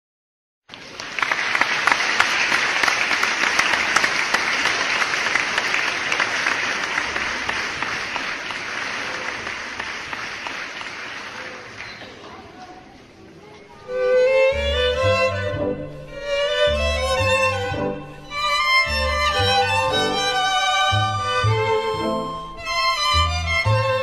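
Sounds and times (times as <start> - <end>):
audience applauding: 0.7 - 12.6, 17.0 - 23.6.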